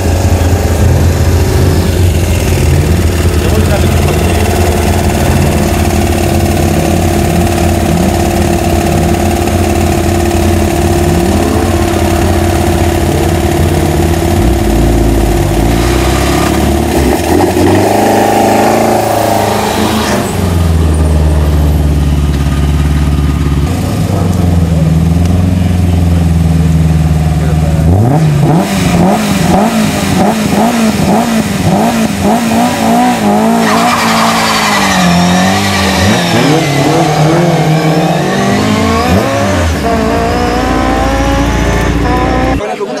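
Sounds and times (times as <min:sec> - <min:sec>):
engine throttle blips: 0:00.0 - 0:43.0
racing car engines idling: 0:00.0 - 0:43.0.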